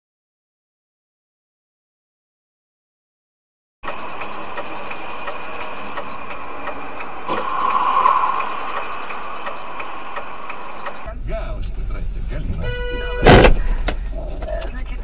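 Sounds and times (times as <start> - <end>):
steady rhythmic ticking: 3.8 - 11.1.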